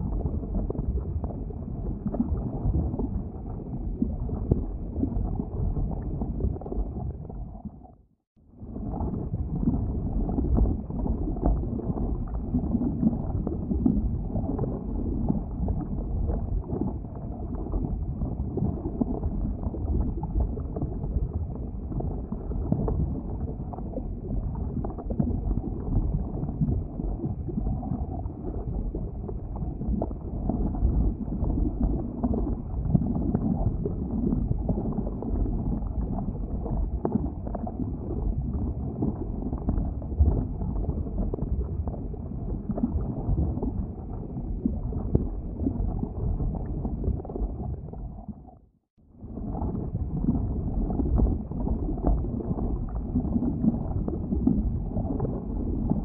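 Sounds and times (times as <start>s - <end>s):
boiling lava rumbling: 0.0s - 56.0s.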